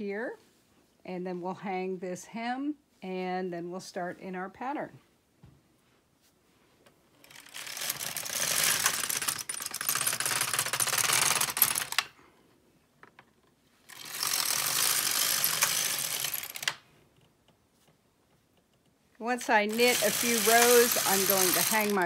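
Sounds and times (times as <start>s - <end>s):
knitting machine carriage rattling: 7.2s - 12.1s, 13.2s - 16.8s, 19.4s - 22.0s.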